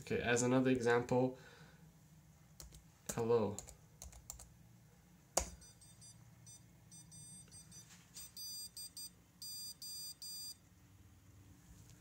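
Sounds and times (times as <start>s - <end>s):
buzzer beeping morse code: 5.5s - 10.6s.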